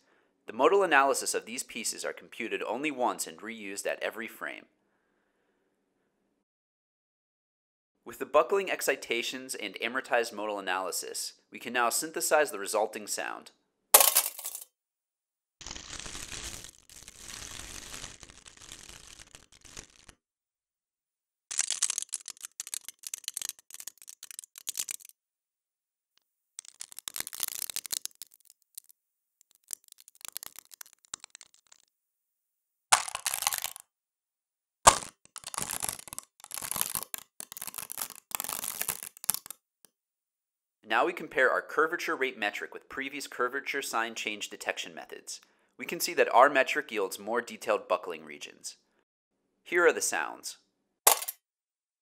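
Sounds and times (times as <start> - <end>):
can being crushed: 14.0 - 14.6, 15.6 - 20.1, 21.5 - 25.1, 26.6 - 31.9, 32.9 - 33.8, 34.9 - 39.6, 51.1 - 51.4
synthesized sheet crumpling crackle: 15.6 - 20.2, 21.5 - 25.2, 26.6 - 31.9, 33.0 - 33.8, 34.9 - 39.6
sharp crack: 32.9 - 33.8, 34.9 - 39.6, 51.1 - 51.4.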